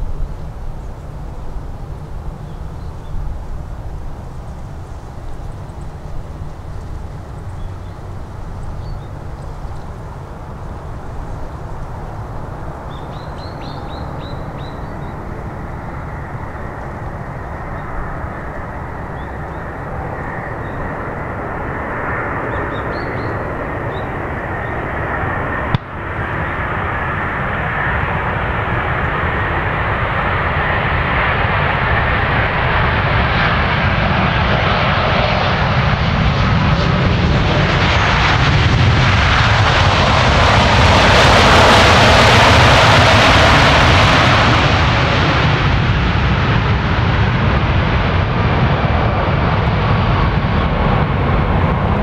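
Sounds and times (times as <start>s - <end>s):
jet engine rumble and hiss: 0.0s - 52.0s.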